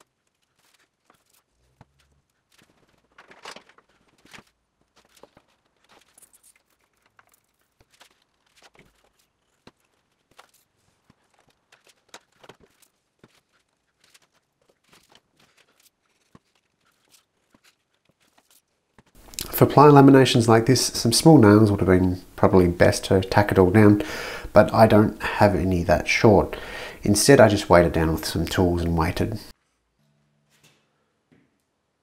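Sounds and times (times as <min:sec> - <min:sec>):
wood strips scraping: 0:00.0 - 0:20.0.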